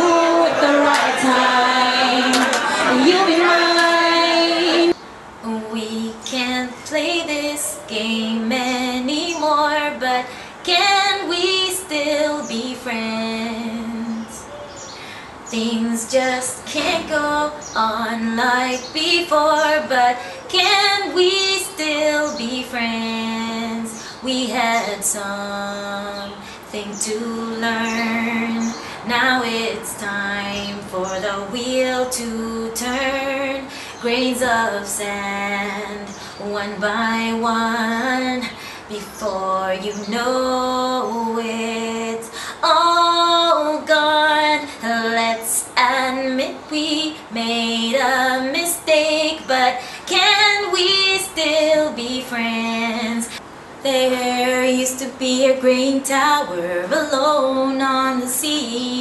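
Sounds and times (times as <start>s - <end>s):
woman singing solo: 0.0s - 14.5s
singer breathing: 10.3s - 10.6s, 14.9s - 15.4s, 33.6s - 34.0s, 38.5s - 38.9s, 42.3s - 42.6s, 49.8s - 50.1s.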